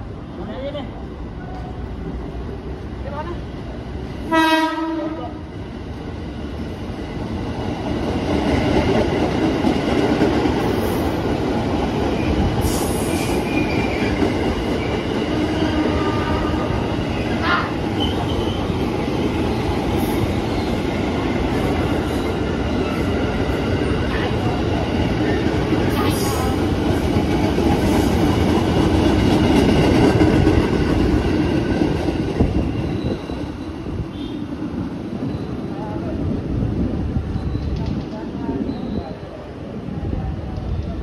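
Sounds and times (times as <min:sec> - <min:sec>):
train wheels rumbling over rails: 0:00.0 - 0:41.0
high wheel squeals: 0:32.8 - 0:34.5.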